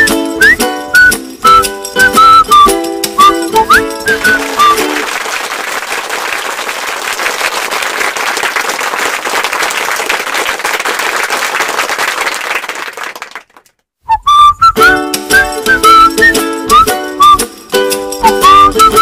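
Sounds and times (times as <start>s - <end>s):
music with whistled tune: 0.0s - 5.0s, 14.1s - 19.0s
crowd applause: 4.0s - 13.7s.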